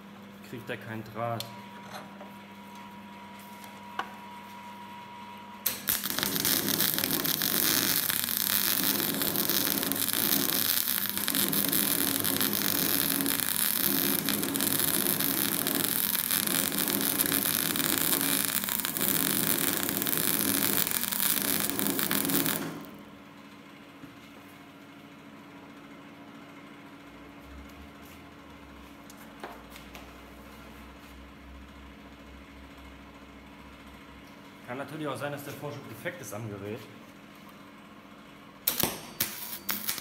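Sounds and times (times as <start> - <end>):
welder humming: 5.6 - 23.0, 38.6 - 40.0
welding arc crackling: 5.7 - 23.0, 38.7 - 40.0.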